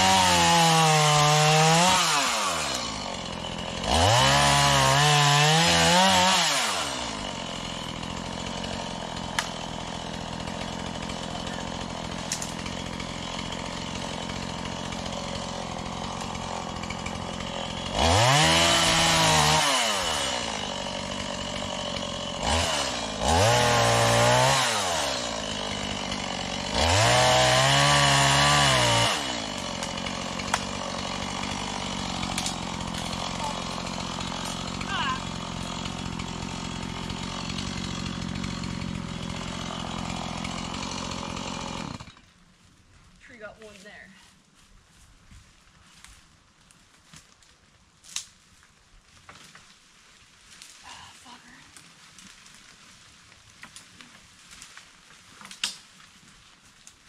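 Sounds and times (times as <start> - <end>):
chainsaw revving and idling: 0.0 - 42.3, 50.6 - 53.0.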